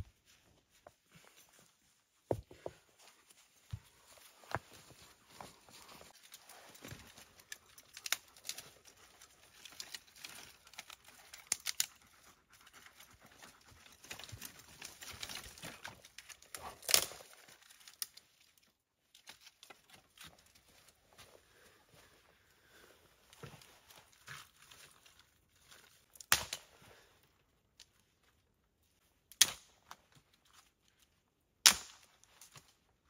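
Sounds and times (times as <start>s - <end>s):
dry sticks being handled: 0.1s - 21.3s
sharp wood crack: 16.2s - 18.2s, 26.2s - 26.7s, 29.3s - 29.9s, 31.6s - 32.2s.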